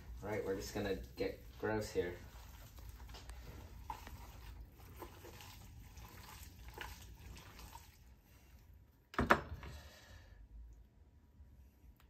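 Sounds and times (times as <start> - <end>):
hands squelching meat mixture: 0.0 - 8.8.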